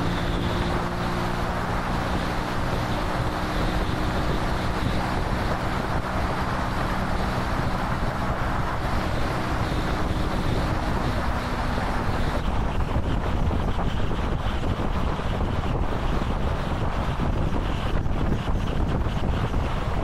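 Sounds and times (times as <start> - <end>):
motorcycle engine cruising: 0.0 - 20.0
wind noise on microphone: 0.0 - 20.0.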